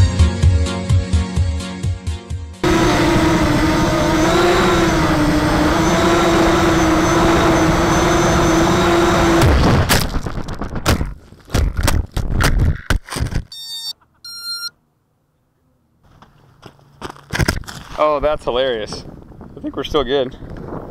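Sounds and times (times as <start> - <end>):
quadcopter propellers whining: 2.6 - 9.9
drone crashing and tumbling: 9.1 - 13.5.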